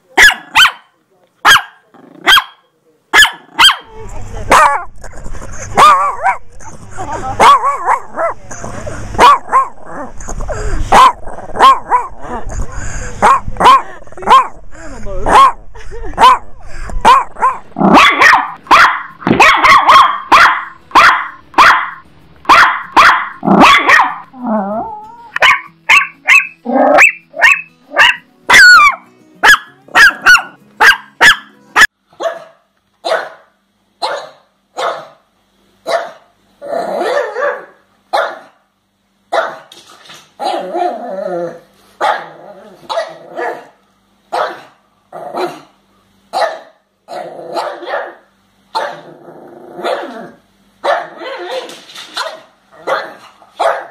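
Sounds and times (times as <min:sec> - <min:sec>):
small dog yapping: 0:03.2 - 0:03.9, 0:17.1 - 0:24.2, 0:48.8 - 0:49.0, 0:50.8 - 0:53.9
dogs barking deeply: 0:04.5 - 0:06.8, 0:07.4 - 0:08.4, 0:09.0 - 0:12.6, 0:13.2 - 0:14.6, 0:15.2 - 0:24.3, 0:46.3 - 0:51.6
dog squealing: 0:23.0 - 0:29.0.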